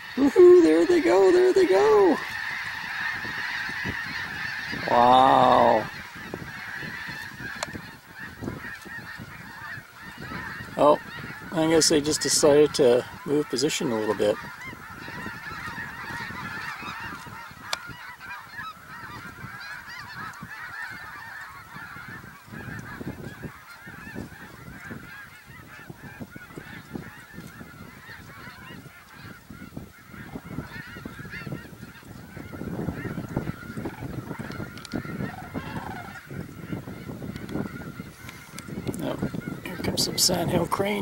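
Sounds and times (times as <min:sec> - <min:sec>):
flock of geese honking: 0:00.0 - 0:41.0.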